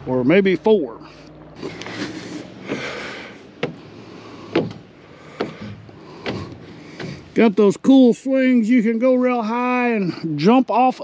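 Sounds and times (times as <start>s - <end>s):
slow footsteps: 1.3s - 7.6s.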